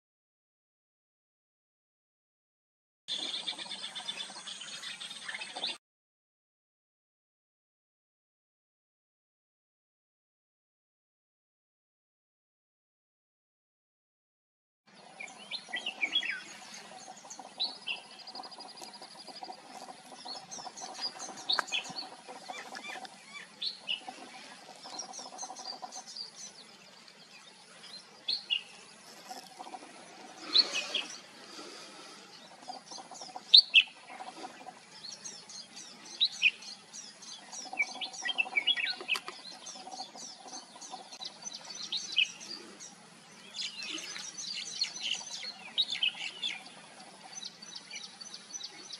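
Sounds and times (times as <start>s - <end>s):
bulbuls chirping: 15.1s - 48.9s.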